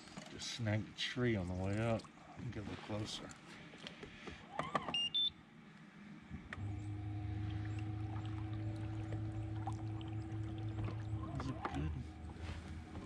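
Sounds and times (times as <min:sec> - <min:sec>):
short electronic beeps: 0:05.0 - 0:05.4
electric motor humming: 0:06.4 - 0:13.0.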